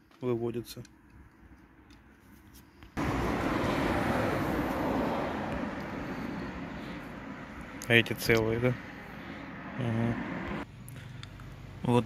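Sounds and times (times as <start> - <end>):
passing road vehicle: 3.0 - 12.0.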